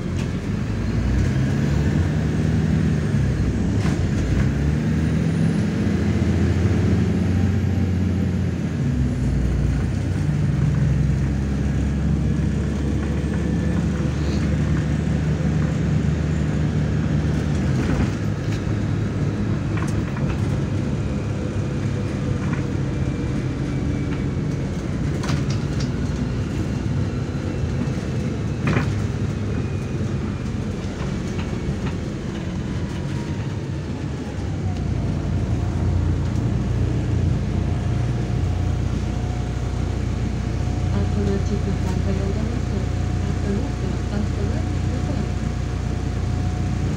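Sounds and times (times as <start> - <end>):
bus engine droning: 0.0 - 46.9
road noise: 0.0 - 46.9
body rattles and knocks: 17.3 - 21.0.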